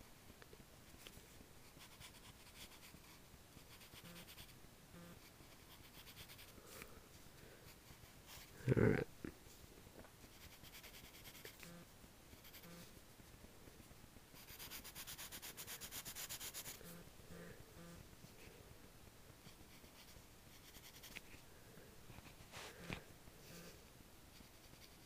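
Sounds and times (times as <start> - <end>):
pencil scratching on paper: 1.7 - 4.5, 5.1 - 6.5, 10.3 - 11.8, 12.4 - 12.9, 14.4 - 17.0, 19.5 - 21.2, 24.3 - 25.0.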